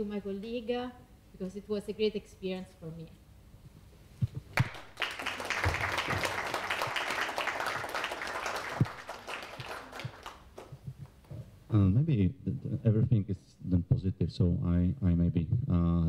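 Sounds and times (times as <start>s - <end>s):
audience applauding: 4.5s - 10.7s.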